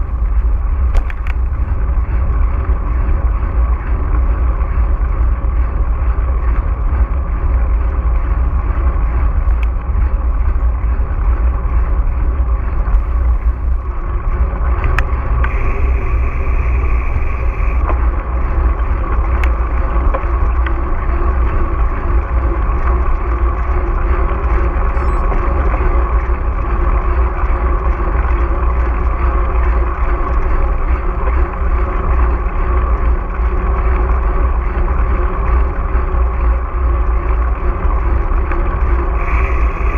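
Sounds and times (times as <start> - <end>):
mountain bike riding rumble: 0.0 - 39.9
wind on microphone: 0.0 - 39.9
brief high squeak: 24.9 - 25.3.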